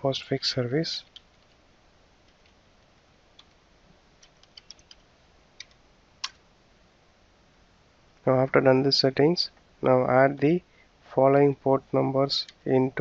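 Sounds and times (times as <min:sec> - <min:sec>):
faint keyboard keystrokes: 0:04.2 - 0:06.4.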